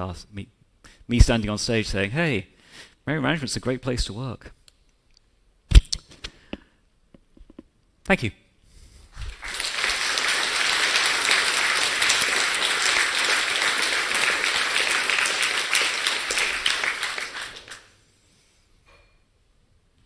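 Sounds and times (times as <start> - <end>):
audience applauding: 9.2 - 18.0.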